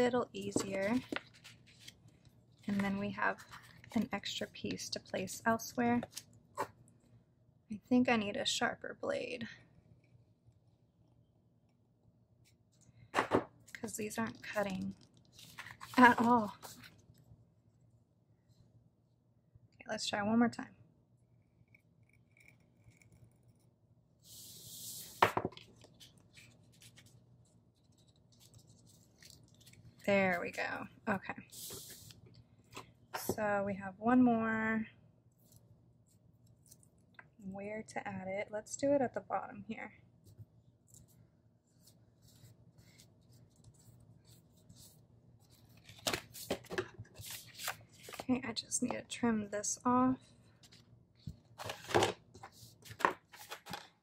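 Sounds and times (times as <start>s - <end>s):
paper rustling: 0.4s - 4.2s, 13.3s - 17.2s, 24.4s - 30.6s, 40.9s - 48.3s, 50.6s - 54.0s.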